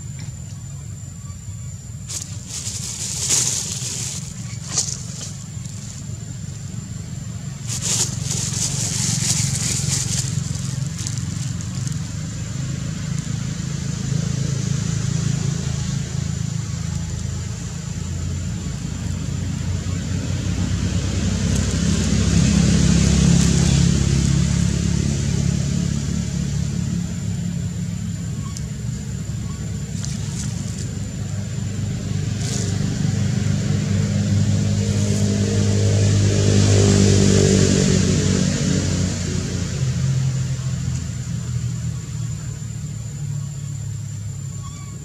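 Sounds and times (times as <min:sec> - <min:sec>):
low background rumble: 0:00.0 - 0:45.0
brief crackle: 0:07.6 - 0:12.2.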